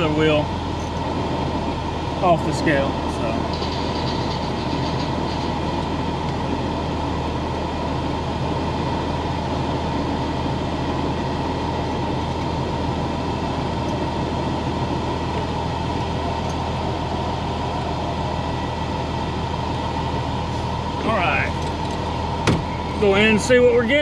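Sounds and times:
truck diesel engine drone: 0:00.0 - 0:24.0.

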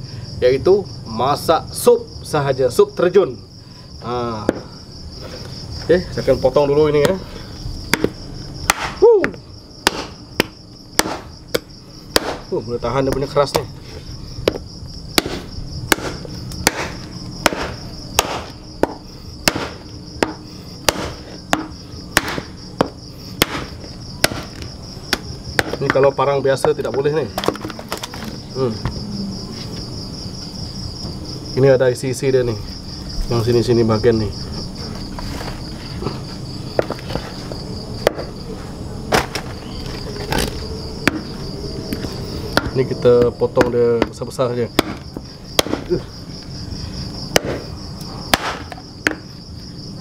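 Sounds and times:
crickets chirping: 0:00.0 - 0:50.0
insects trilling: 0:00.0 - 0:50.0
hatchet chopping shell on wood: 0:04.4 - 0:04.7, 0:07.9 - 0:12.5, 0:14.4 - 0:14.6, 0:15.2 - 0:28.3, 0:38.0 - 0:38.3, 0:40.4 - 0:41.3, 0:42.0 - 0:44.2, 0:44.8 - 0:45.9, 0:47.3 - 0:47.7, 0:48.3 - 0:49.3.

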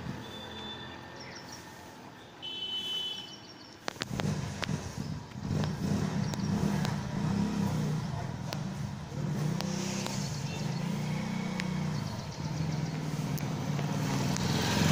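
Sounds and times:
low traffic hum: 0:00.0 - 0:14.9
sharp clicks: 0:03.8 - 0:07.0, 0:11.4 - 0:11.8
vehicle engine rumbling: 0:03.8 - 0:14.9.

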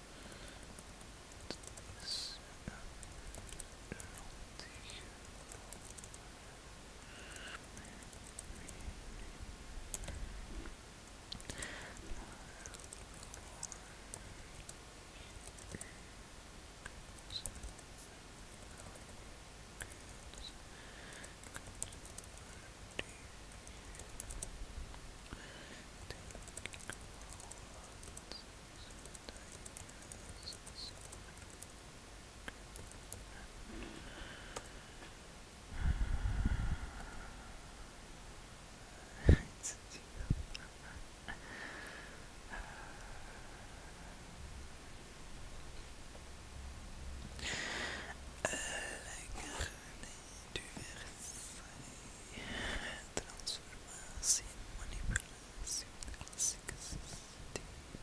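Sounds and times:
soft keyboard typing: 0:00.6 - 0:06.3, 0:07.2 - 0:08.9, 0:09.9 - 0:10.2, 0:11.3 - 0:16.0, 0:16.8 - 0:19.2, 0:19.8 - 0:24.5, 0:26.0 - 0:31.8, 0:32.5 - 0:33.4
small clicks and light taps: 0:00.7 - 0:02.0, 0:02.6 - 0:06.2, 0:26.0 - 0:31.8, 0:32.4 - 0:33.3
faint whisper: 0:01.4 - 0:10.7, 0:11.3 - 0:16.2, 0:16.8 - 0:19.2, 0:19.8 - 0:24.4, 0:25.2 - 0:31.6, 0:32.5 - 0:38.1, 0:38.8 - 0:44.4, 0:47.3 - 0:58.0.

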